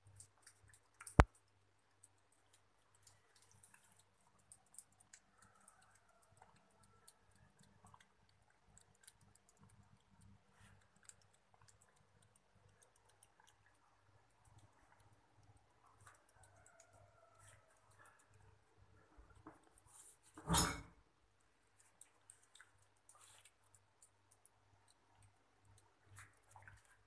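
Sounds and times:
cat lapping milk: 0.0s - 20.3s, 21.4s - 27.0s.

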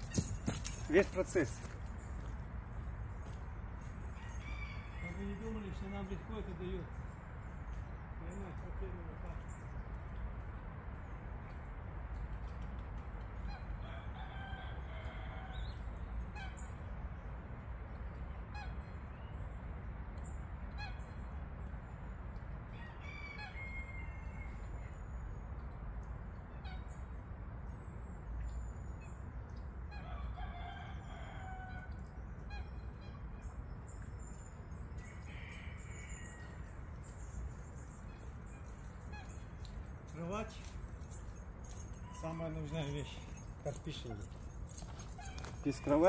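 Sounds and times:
drawn-out bird calls: 29.9s - 46.0s.

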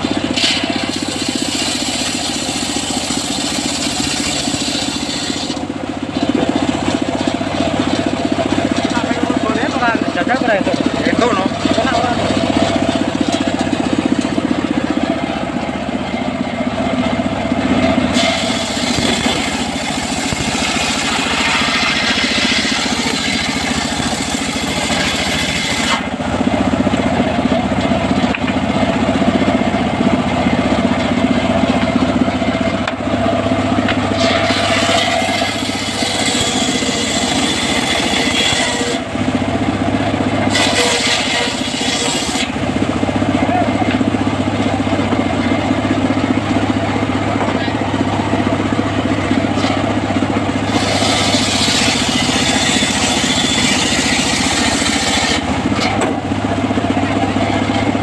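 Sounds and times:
saw blade cutting wood whine: 0.0s - 58.0s
table saw droning: 0.0s - 58.0s.

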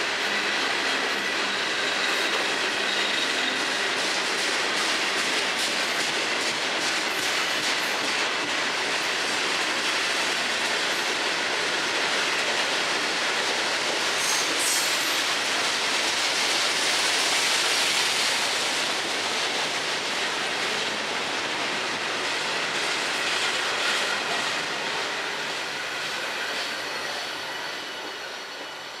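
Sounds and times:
train wheels clattering: 0.3s - 28.2s
high wheel squeal: 1.2s - 3.9s, 25.6s - 29.0s.

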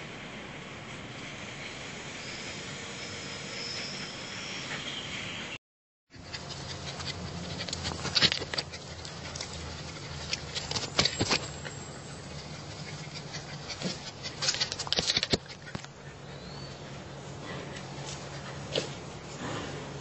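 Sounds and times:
puppy claws clicking on concrete: 6.2s - 11.8s, 12.8s - 16.0s.

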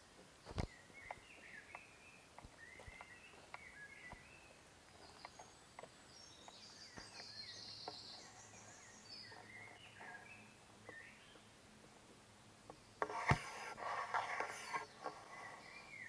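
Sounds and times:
birds chirping and whistling: 0.6s - 11.5s, 14.1s - 16.0s.

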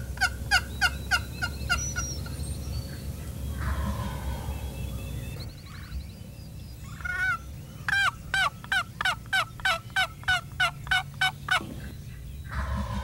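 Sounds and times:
turkey box call yelps: 6.8s - 11.6s.

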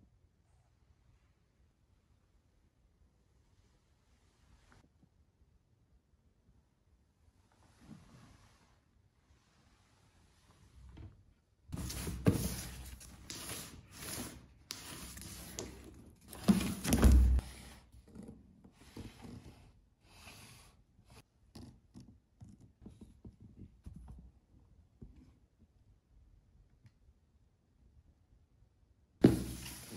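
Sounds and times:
cardboard box rustling and scraping: 11.8s - 17.8s.

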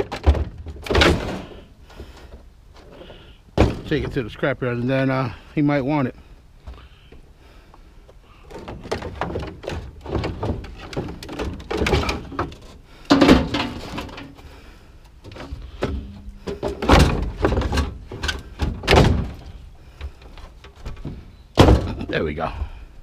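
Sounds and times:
heavy thuds: 0.0s - 5.4s, 8.5s - 14.6s, 15.2s - 23.0s
scrap knocking and clattering: 8.5s - 14.4s, 15.3s - 22.2s.

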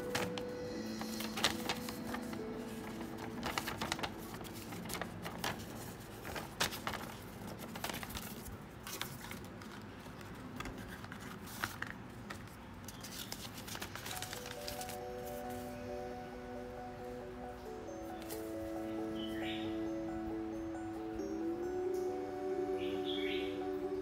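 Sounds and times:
paper pages rustling and flipping: 0.0s - 15.8s, 18.1s - 19.4s.

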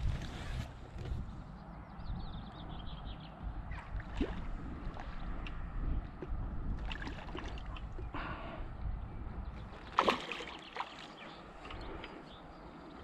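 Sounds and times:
wind rumble on microphone: 0.0s - 10.2s
water sloshing and splashing: 3.7s - 8.2s, 9.6s - 12.3s.

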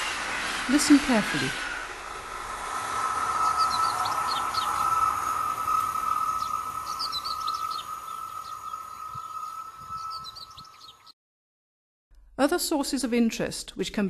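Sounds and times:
rails singing high-pitched tone: 2.5s - 11.1s
birds chirping: 3.2s - 11.2s.

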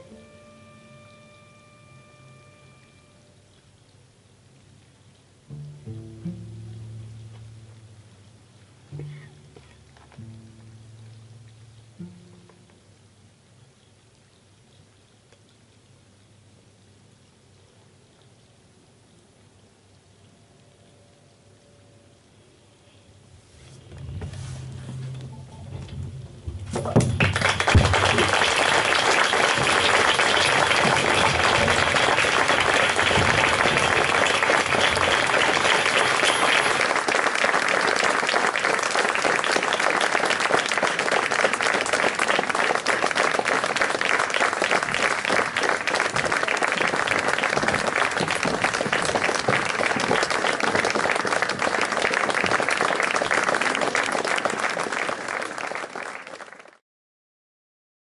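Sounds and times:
audience applauding: 27.0s - 56.8s.

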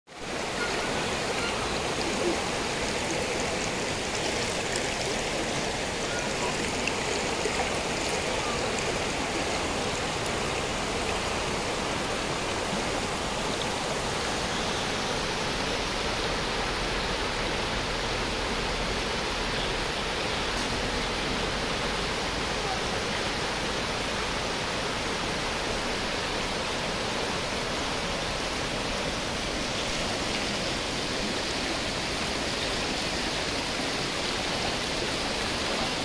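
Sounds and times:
river rushing over rocks: 0.1s - 36.0s.

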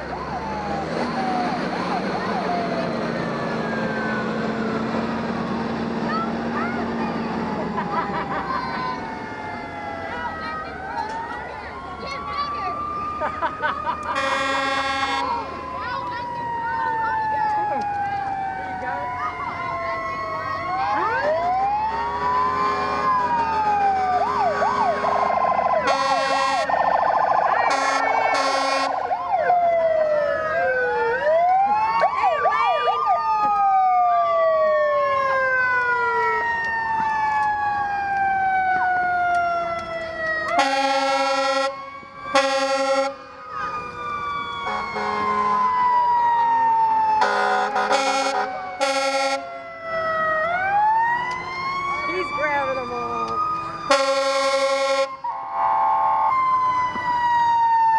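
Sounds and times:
emergency sirens wailing: 0.0s - 57.9s
truck air horn blasts: 14.2s - 15.4s, 22.5s - 23.2s, 25.9s - 26.7s, 27.7s - 29.0s, 40.6s - 43.2s, 44.6s - 45.7s, 47.2s - 49.5s, 53.9s - 56.1s.

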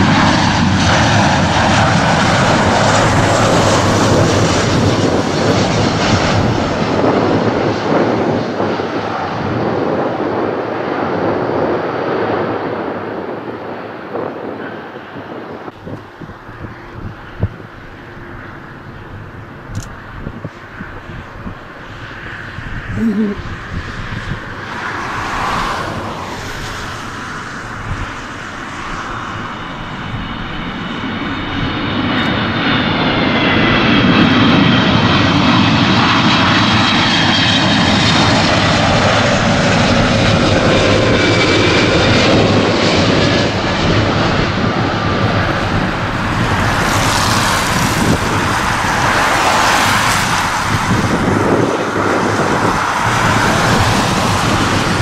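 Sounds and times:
high jet engine whine: 0.0s - 55.0s
jet airliner engine roar: 0.0s - 55.0s.

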